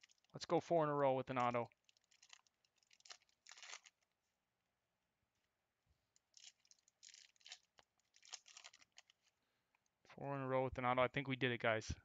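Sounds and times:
foil wrapper rustling: 1.8 - 4.0, 6.3 - 9.3
cards being handled: 2.2 - 4.0.

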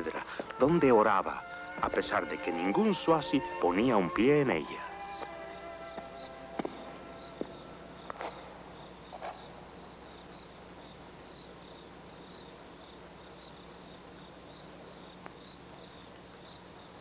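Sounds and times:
crickets chirping: 0.0 - 17.0
soft footfalls and knocks: 5.2 - 8.5.

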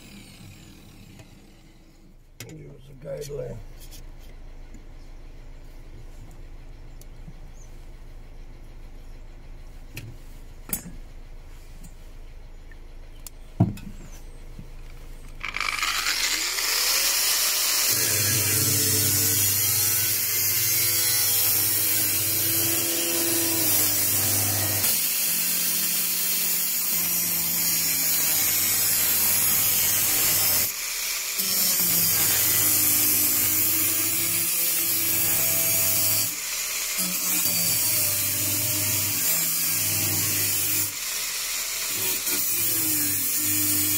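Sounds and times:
grinder cutting sheet metal: 15.4 - 43.9.

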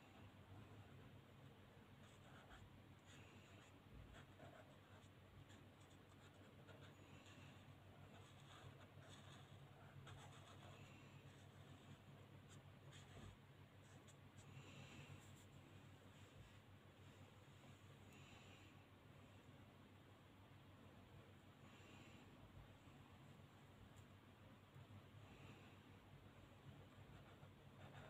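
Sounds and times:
low steady hum: 0.0 - 28.0
marker scratching on paper: 2.0 - 14.5, 26.9 - 28.0.

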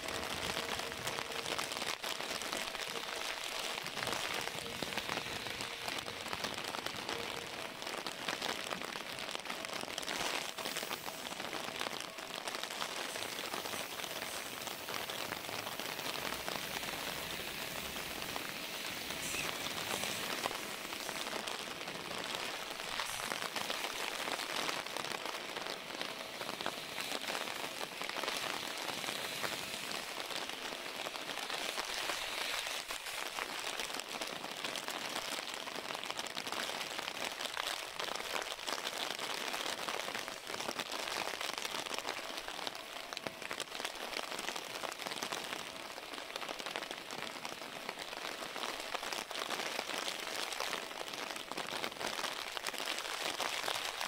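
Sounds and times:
heavy rain hissing: 0.0 - 8.8, 9.6 - 35.9.

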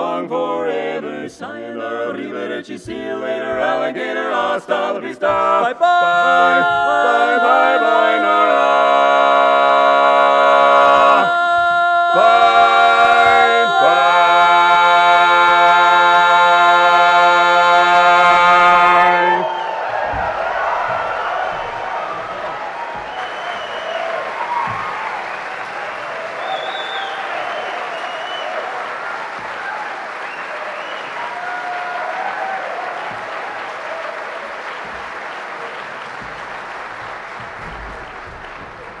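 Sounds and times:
male quartet singing a cappella: 0.0 - 19.5
audience applauding: 12.2 - 39.0.

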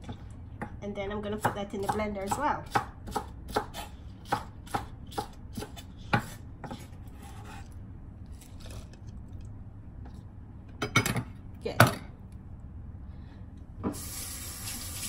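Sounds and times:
knife chopping on wooden board: 1.4 - 7.6.

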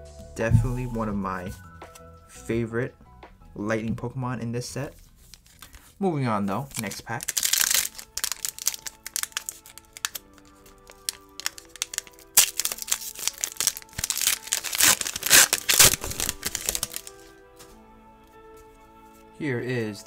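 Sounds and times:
soft lo-fi background music: 0.0 - 20.0
foil wrapper crinkling and tearing: 5.2 - 5.9, 6.6 - 17.3.

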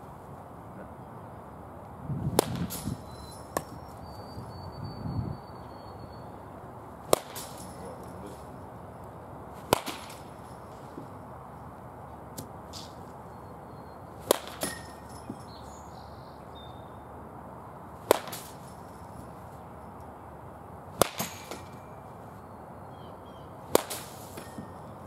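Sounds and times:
bat cracking baseballs: 2.2 - 4.1, 6.7 - 13.2, 14.1 - 15.8, 17.9 - 20.1, 20.9 - 22.4, 23.6 - 25.0.

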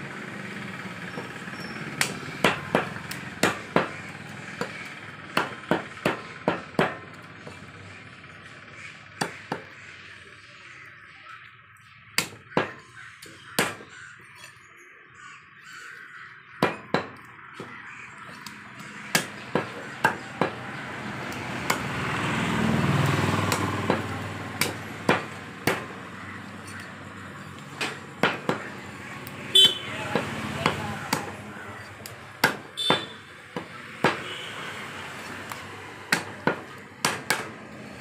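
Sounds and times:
knife striking wooden chopping block: 16.6 - 20.6, 23.5 - 25.9, 32.4 - 34.3, 36.1 - 37.5.

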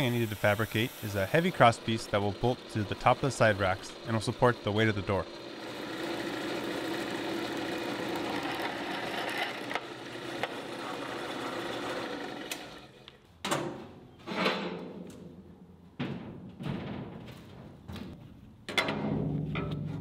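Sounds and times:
drill cutting chatter on steel: 0.0 - 13.0
drill press motor hum: 0.0 - 13.2.

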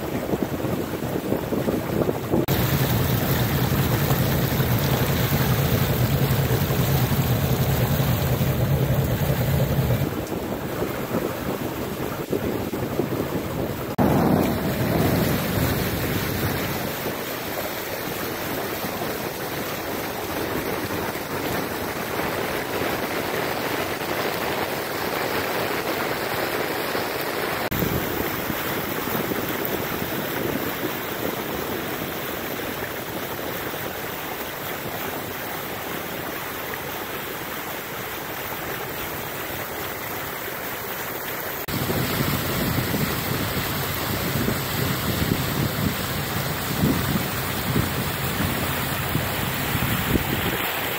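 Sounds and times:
river water rushing and splashing: 0.0 - 50.9
low rumble: 2.5 - 10.4, 13.8 - 17.0, 41.7 - 50.4.

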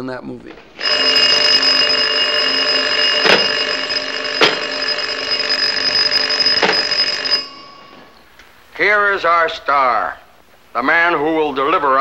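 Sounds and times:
telephone bells ringing: 0.6 - 10.0
sharp knocks: 3.2 - 3.7.

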